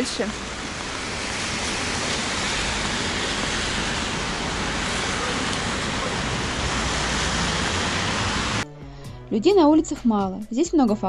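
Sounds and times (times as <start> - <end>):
rain falling on wet street: 0.0 - 8.6.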